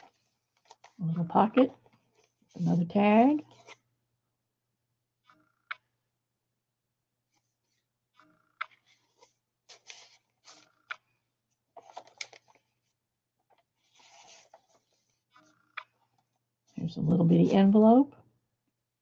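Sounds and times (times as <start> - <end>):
page turning: 0.0 - 1.0, 3.4 - 3.8, 8.6 - 11.0, 11.8 - 16.4
paper card rustling: 0.0 - 3.8, 8.6 - 11.0, 11.8 - 16.4.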